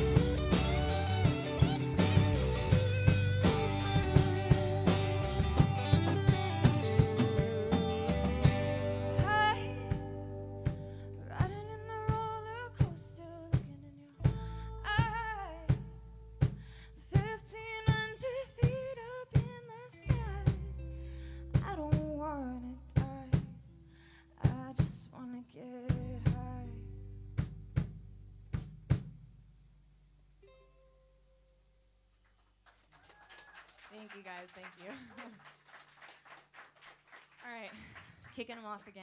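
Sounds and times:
steady drum hits: 0.0 - 13.0
live rock band playing: 0.0 - 13.1
wavering lead guitar melody: 0.0 - 13.5, 30.4 - 31.6.

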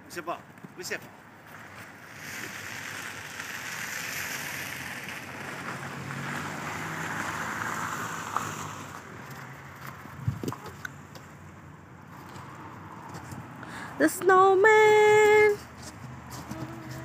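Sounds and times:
tyres rushing on wet road: 1.5 - 9.8
faint low engine hum: 15.0 - 17.0.

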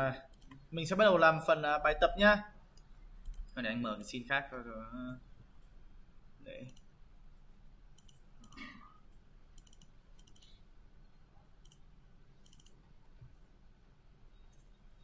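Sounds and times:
low room hum: 0.0 - 15.0
computer mouse clicks: 0.3 - 0.7, 2.7 - 3.6, 6.6 - 6.9, 7.9 - 10.6, 11.4 - 13.4.

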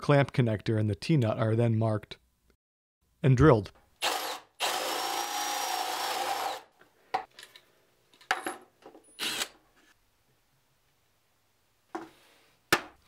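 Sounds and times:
cordless drill boring wood: 4.0 - 6.7, 9.2 - 9.5
drill handling sounds: 4.0 - 6.7, 9.1 - 9.6.

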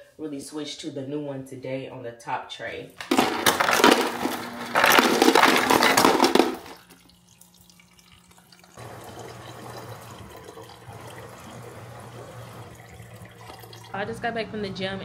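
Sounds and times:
tap water running into sink: 6.3 - 14.0.

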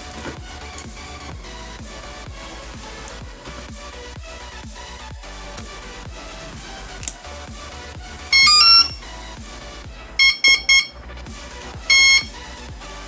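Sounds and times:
motor controller tones and beeps: 8.4 - 9.0, 10.2 - 10.9, 11.9 - 12.3.

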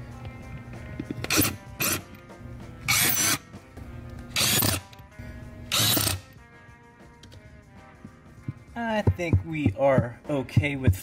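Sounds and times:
cordless drill driving screws: 2.9 - 3.4, 4.4 - 4.9, 5.7 - 6.3.

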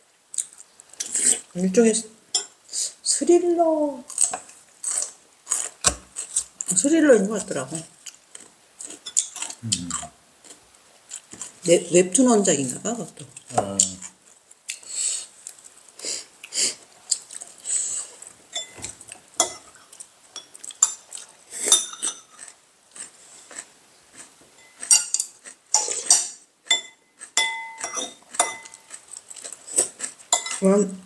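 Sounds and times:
utensils clinking on ceramic bowls: 18.5 - 19.7, 21.7 - 22.5, 24.6 - 29.0, 30.3 - 30.7.

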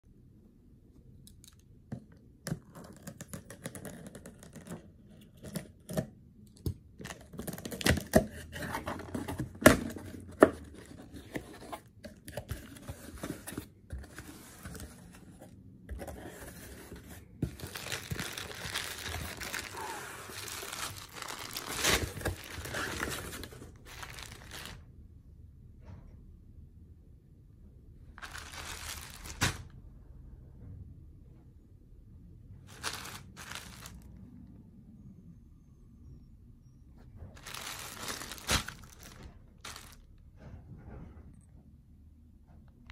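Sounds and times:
plastic bag rustling: 16.8 - 24.8, 28.2 - 29.7, 32.7 - 34.1, 37.4 - 40.1.

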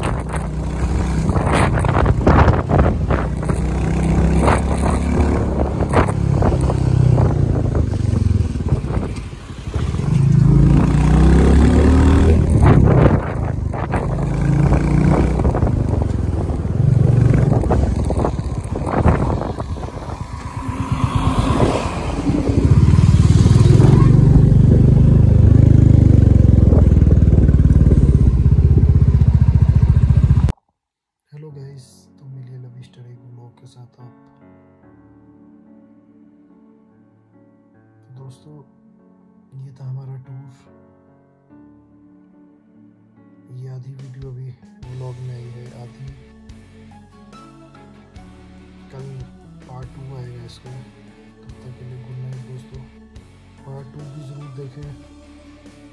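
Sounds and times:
motorcycle engine running: 0.0 - 30.5
wind buffeting microphone: 0.0 - 30.5.

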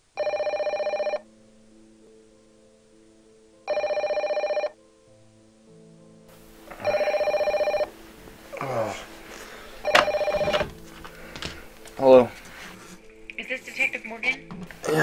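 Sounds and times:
landline telephone ringing: 0.2 - 1.2, 3.7 - 4.8, 6.7 - 8.0, 9.8 - 11.6.

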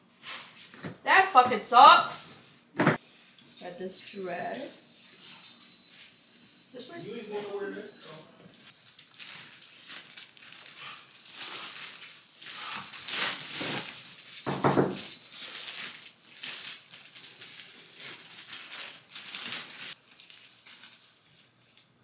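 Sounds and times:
plastic bags crinkling: 8.6 - 21.9.

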